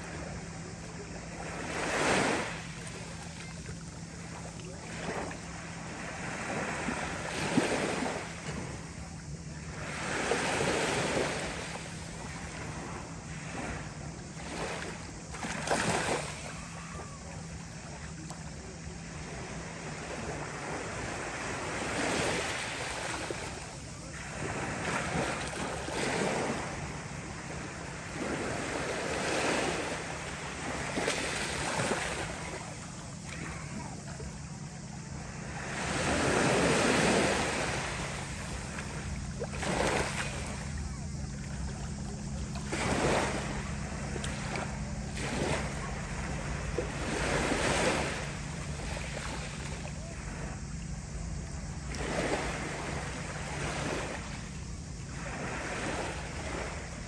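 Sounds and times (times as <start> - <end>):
waves lapping on pebble shore: 0.0 - 8.9, 9.8 - 16.6, 19.0 - 34.1, 35.4 - 50.4, 51.8 - 54.4
steady low hum: 0.0 - 57.0.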